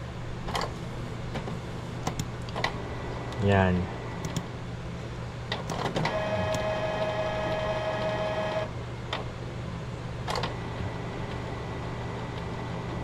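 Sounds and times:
printer motor whine: 0:05.7 - 0:08.8, 0:10.3 - 0:13.0.

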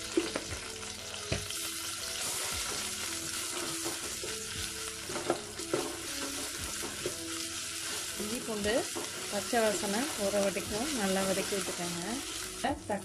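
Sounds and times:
paste sizzling in hot oil: 0:00.0 - 0:13.0.

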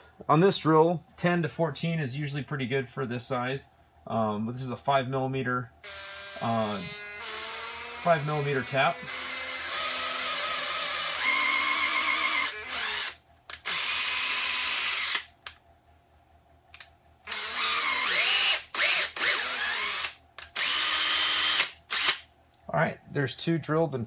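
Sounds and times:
cordless drill motor whining: 0:05.8 - 0:15.3, 0:17.3 - 0:22.2.

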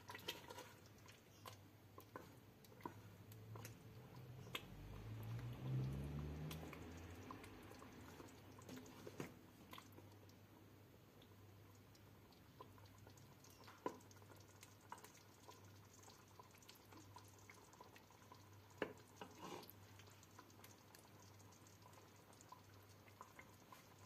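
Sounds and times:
stew dripping: 0:00.0 - 0:24.0
spoon scraping metal pot: 0:19.2 - 0:19.8.

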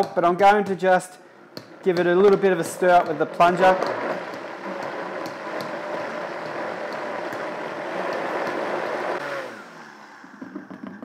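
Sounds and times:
blender motor running: 0:02.6 - 0:11.0.

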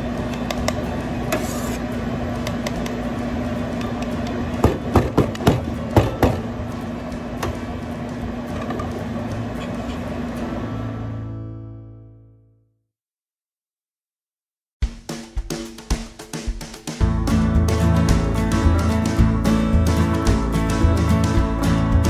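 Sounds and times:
steady low hum: 0:00.0 - 0:11.6.

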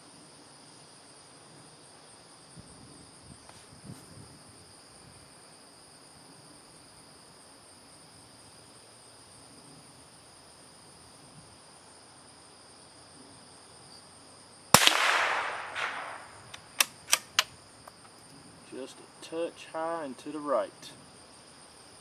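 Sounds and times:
insects trilling: 0:04.2 - 0:22.0
rifle shot with echo: 0:14.8 - 0:17.5
short sharp clicks: 0:14.8 - 0:17.5.

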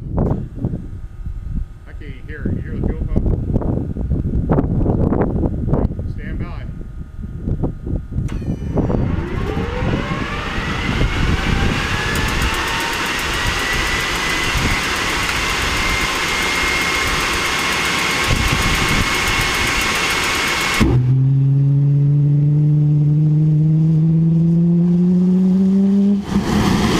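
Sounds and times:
jet engine whine: 0:08.2 - 0:21.4, 0:25.0 - 0:26.9
fast even ticking: 0:12.1 - 0:20.8.

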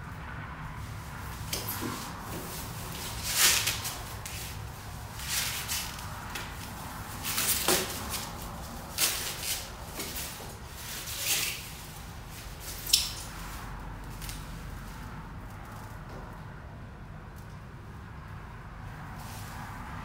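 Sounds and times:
foam sheet rustling and crinkling: 0:01.8 - 0:12.9.

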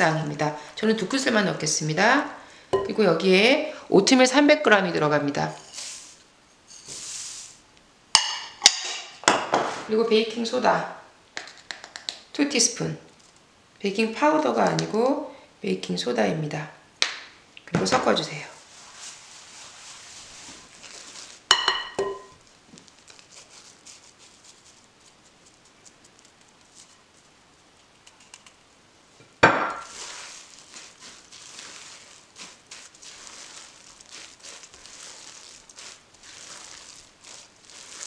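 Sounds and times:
scraping and stirring batter: 0:05.4 - 0:07.6, 0:18.6 - 0:28.8, 0:29.8 - 0:38.0
utensil clinking against glass: 0:21.5 - 0:22.3.

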